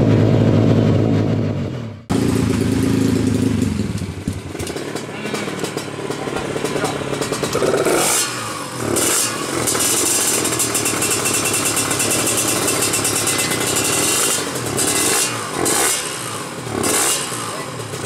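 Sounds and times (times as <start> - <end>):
two-stroke motorcycle engine revving: 0.0 - 18.0.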